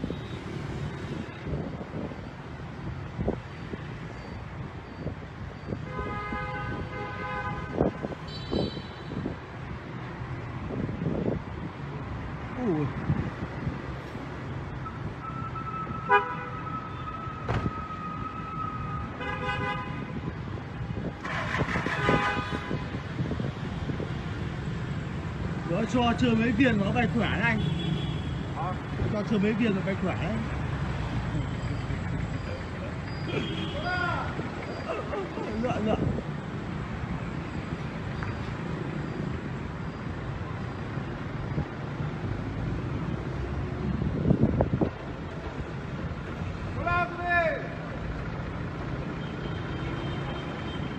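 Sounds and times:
traffic rumble: 0.0 - 50.9
vehicle horns honking: 5.8 - 9.2, 15.4 - 17.1, 19.2 - 20.3, 21.3 - 23.0, 33.1 - 34.0.

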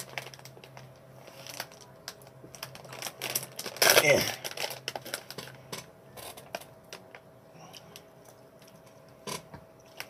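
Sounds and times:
plastic pouch crinkling: 0.0 - 7.2.

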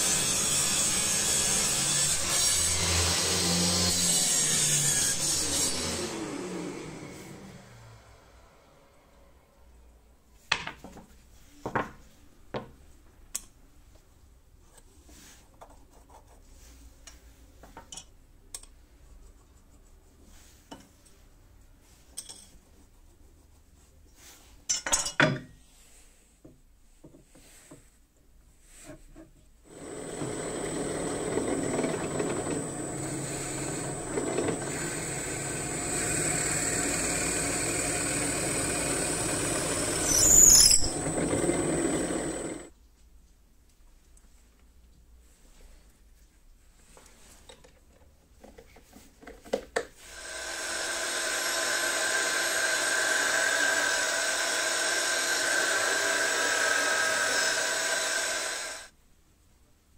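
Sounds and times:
drill press whining: 29.7 - 42.7, 50.0 - 58.9.

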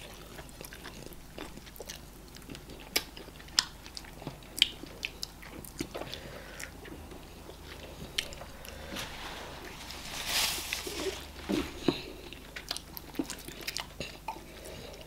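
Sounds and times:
wet chewing mouth sounds: 0.0 - 9.8, 10.9 - 15.0.

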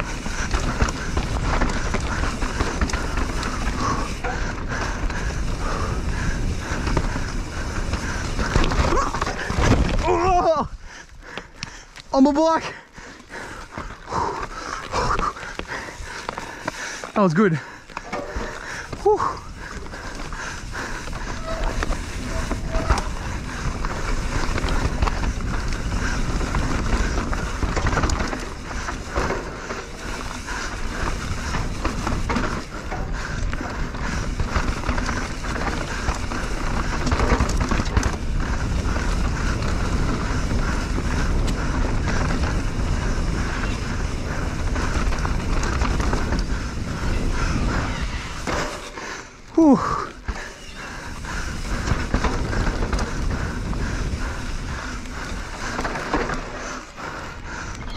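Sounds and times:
bike knocking on rough ground: 0.0 - 10.6, 13.2 - 56.9
bike tyres rolling rumble: 0.0 - 57.9.

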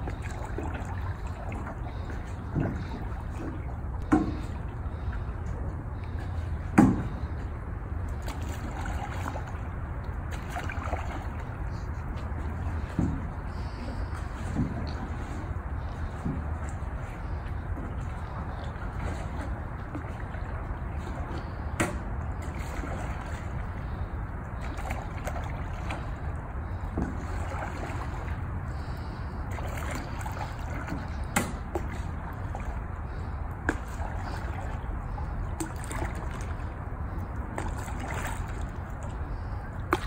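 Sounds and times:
paddle pulling through water: 0.0 - 40.0
water trickling off paddle: 0.0 - 40.0.

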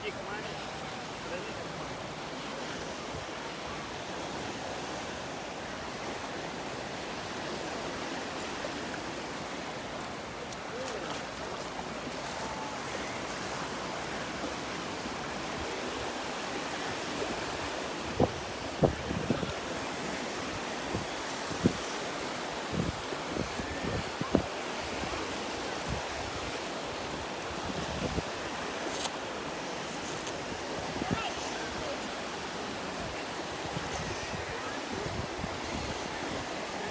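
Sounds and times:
small waves washing onto shore: 0.0 - 36.9
wind on microphone: 12.1 - 36.9.

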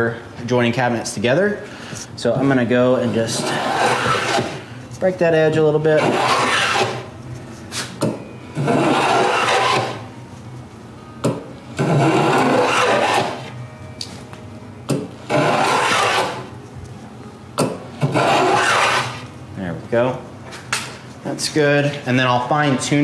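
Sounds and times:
hand tool rasping on wood: 3.1 - 4.6, 6.0 - 7.1, 8.6 - 10.1, 11.8 - 13.5, 15.3 - 16.5, 18.0 - 19.2.

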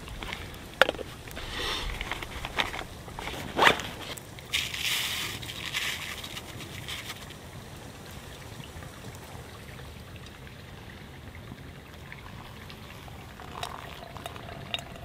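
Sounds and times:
water pouring from a kettle: 0.0 - 7.6, 11.9 - 15.0
wood fire hissing and crackling: 0.0 - 15.0.

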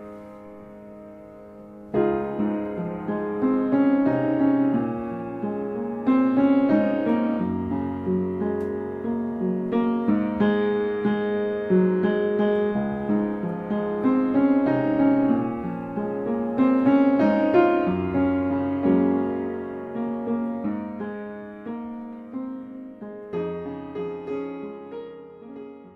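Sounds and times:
gentle piano melody: 0.0 - 25.9.

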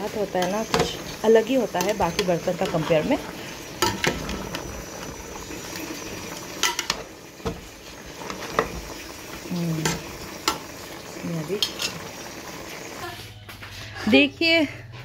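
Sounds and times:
meat sizzling: 0.0 - 13.3
metal spoon scraping a pot: 0.3 - 5.7, 11.6 - 12.0.

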